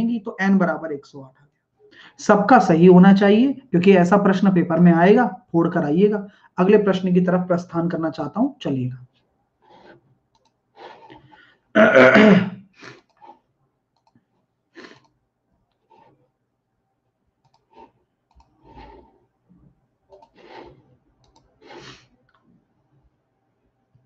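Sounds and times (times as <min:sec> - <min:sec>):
faint clicks: 0:10.3 - 0:11.4, 0:14.0 - 0:14.2, 0:17.4 - 0:19.0, 0:20.1 - 0:22.5
man clearing throat: 0:11.8 - 0:12.6
soft coughs: 0:11.9 - 0:12.6.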